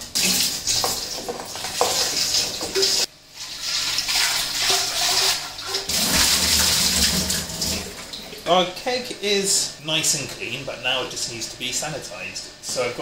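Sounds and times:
water running and sloshing: 0:00.0 - 0:08.6.

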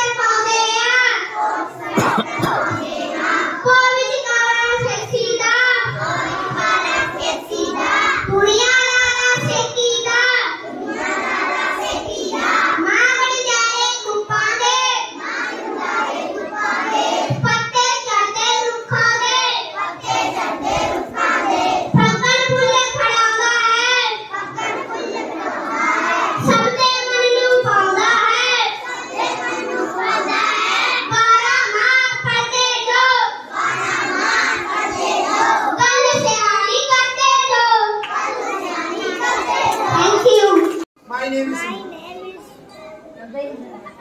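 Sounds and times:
child singing: 0:00.0 - 0:40.8.

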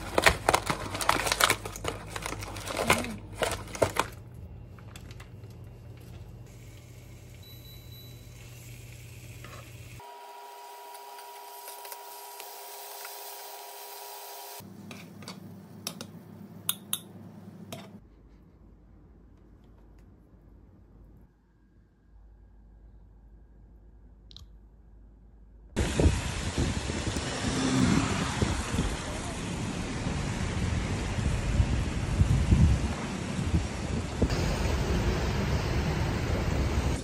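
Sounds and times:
plastic packaging crinkling: 0:00.0 - 0:06.2.

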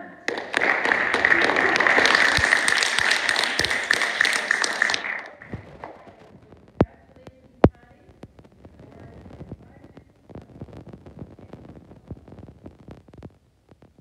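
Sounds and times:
group of people applauding: 0:00.0 - 0:06.3.

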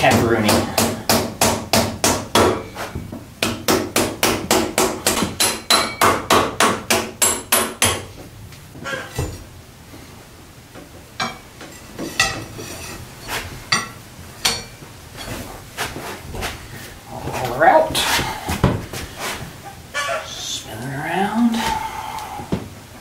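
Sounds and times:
hammer striking metal axle: 0:05.1 - 0:08.0.

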